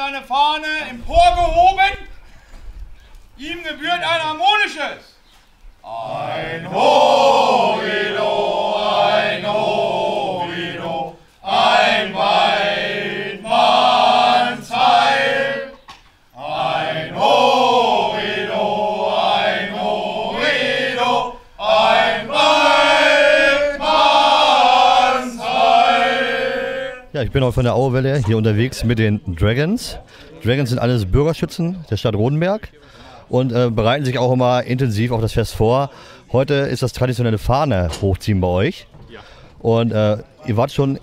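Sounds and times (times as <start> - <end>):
singers breathing: 2.2 - 3.3, 30.0 - 30.4, 32.8 - 33.3, 35.9 - 36.3, 39.1 - 39.6
men singing in chorus: 5.8 - 15.8, 16.4 - 27.1.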